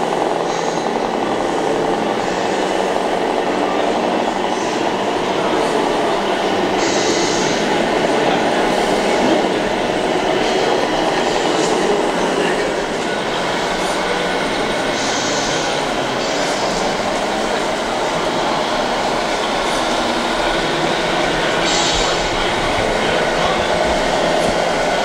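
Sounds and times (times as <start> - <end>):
rc trucks rumbling on track: 0.0 - 25.0.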